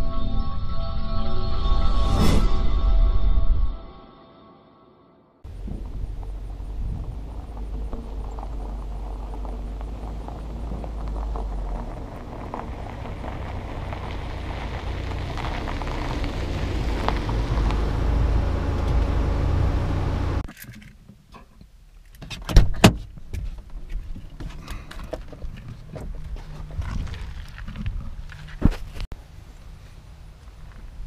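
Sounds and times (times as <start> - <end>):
car engine and tyres rumbling: 5.4 - 31.0.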